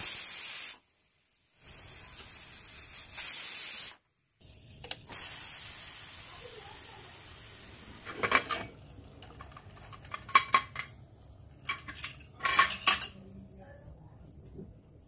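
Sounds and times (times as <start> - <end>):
steam hissing from pressure cooker: 0.0 - 8.6
metal lid clanking on pot: 11.6 - 13.2.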